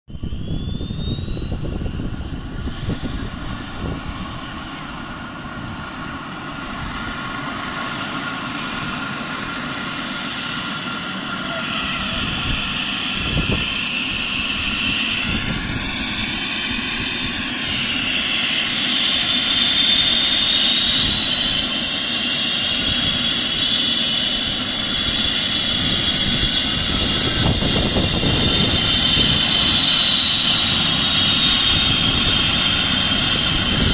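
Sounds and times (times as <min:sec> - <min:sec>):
helicopter turbine whine: 0:00.1 - 0:33.9.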